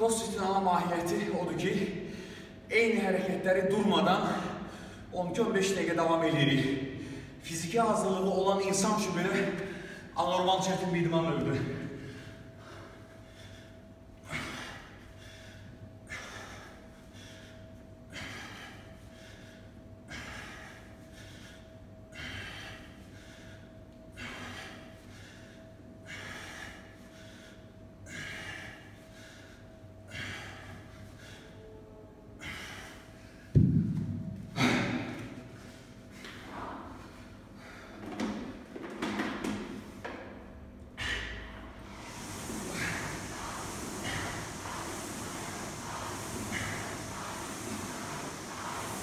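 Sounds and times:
kettlebell thud: 33.6s - 35.0s.

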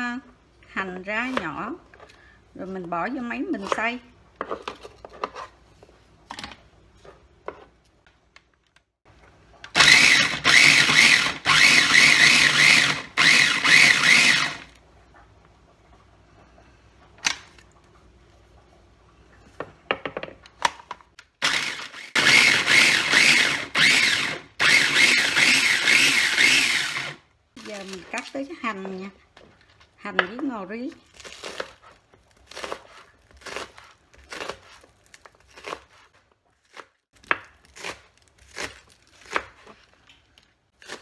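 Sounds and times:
food processor grinding: 9.7s - 14.8s, 21.4s - 28.0s.

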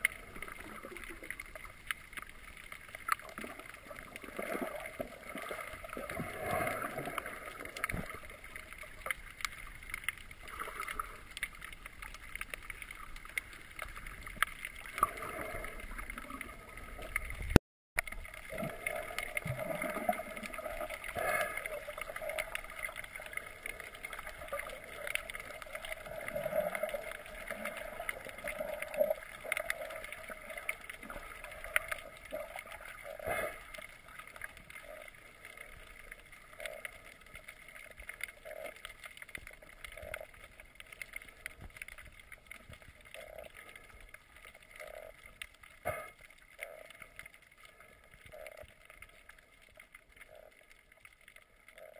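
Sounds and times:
clicks and crackles: 0.0s - 51.9s
muffled underwater sloshing: 0.0s - 51.9s.

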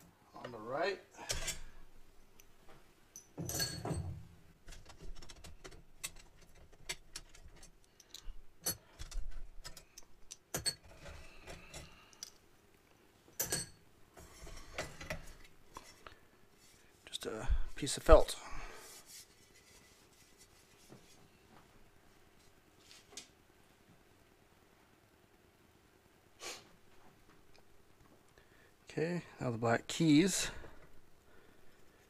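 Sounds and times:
metal hardware clicking and rattling: 3.1s - 12.4s, 13.3s - 13.8s.

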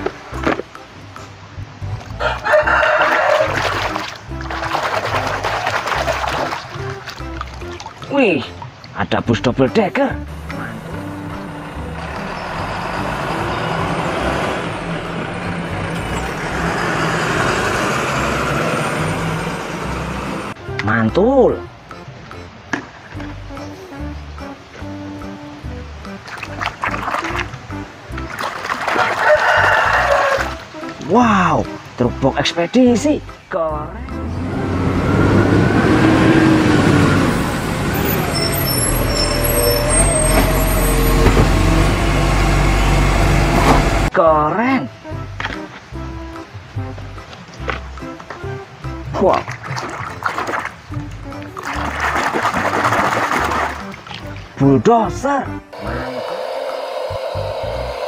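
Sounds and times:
road noise: 0.0s - 58.0s
trucks driving past: 10.1s - 20.7s, 34.0s - 44.2s, 55.6s - 58.0s
bus engine running: 10.2s - 20.6s, 34.2s - 44.1s, 55.8s - 58.0s.

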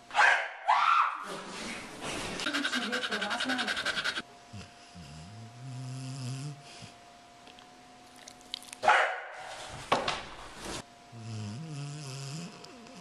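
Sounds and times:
dog grumbling groan: 11.1s - 13.0s.

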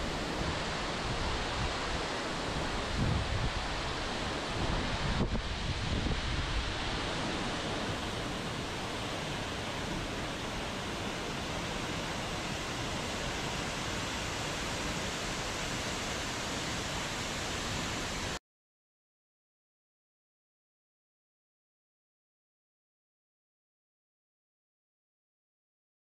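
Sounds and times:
waterfall rushing: 0.0s - 18.4s.

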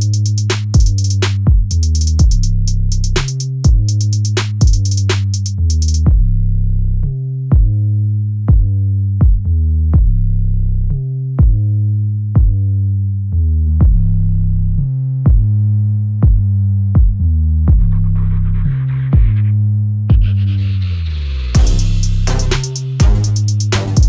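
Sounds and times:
drum machine beat: 0.0s - 6.3s, 7.5s - 7.8s, 8.5s - 10.2s, 11.4s - 11.6s, 12.4s - 12.6s, 15.3s - 15.6s, 16.2s - 19.4s, 20.1s - 20.4s, 21.6s - 24.0s
deep synthesizer bass: 0.0s - 24.0s.

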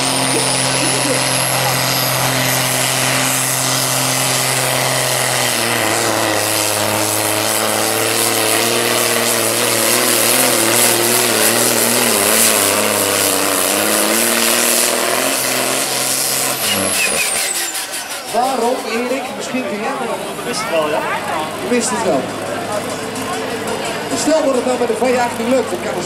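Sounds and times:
diesel tractor engine under full load: 0.0s - 26.0s.

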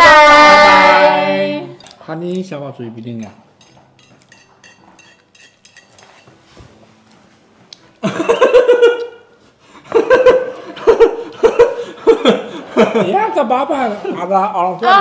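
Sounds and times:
person laughing loudly: 8.0s - 9.2s, 9.9s - 13.2s.

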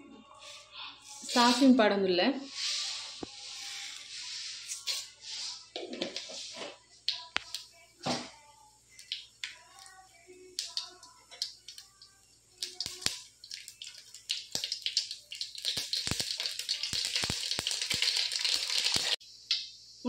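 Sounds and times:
seeds frying in hot oil: 8.9s - 20.0s.

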